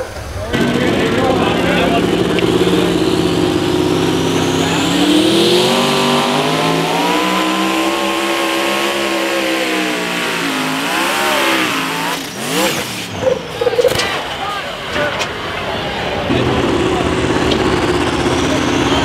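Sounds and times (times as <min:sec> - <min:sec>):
tractor engine revving: 0:00.0 - 0:19.0.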